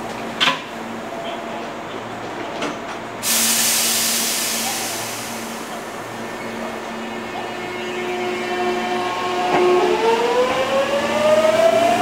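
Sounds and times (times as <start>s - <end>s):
compressed air hiss: 3.2s - 5.8s
electric train humming: 3.2s - 12.0s.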